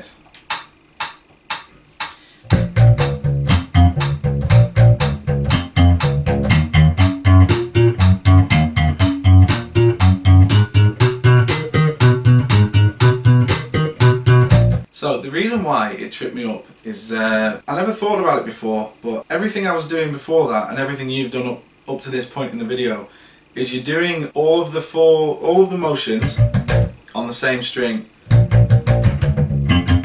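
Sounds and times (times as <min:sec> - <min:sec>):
slap bass notes: 0:02.5 - 0:14.9, 0:26.2 - 0:27.0, 0:28.3 - 0:30.0.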